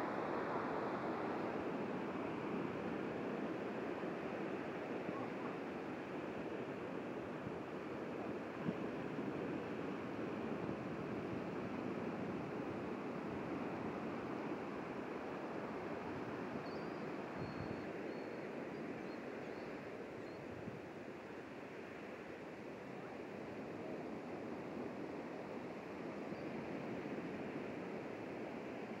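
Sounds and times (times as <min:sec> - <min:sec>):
faint high bird chirps: 0:16.6 - 0:20.5.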